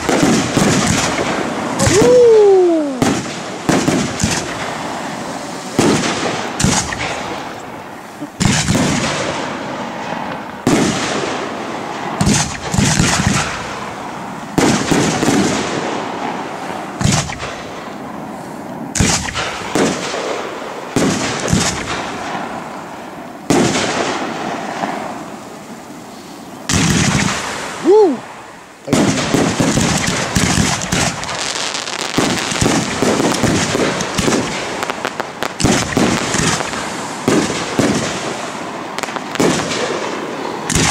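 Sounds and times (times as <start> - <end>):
firework shells bursting: 0.0 - 22.7, 28.9 - 40.9.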